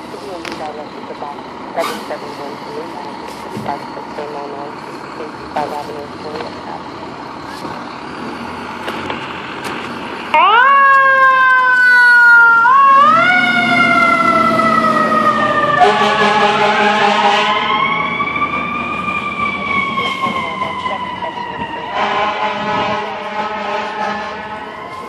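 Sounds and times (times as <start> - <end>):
fire engine siren wailing: 0.0 - 25.0
steady blaring horn tone: 11.3 - 25.0.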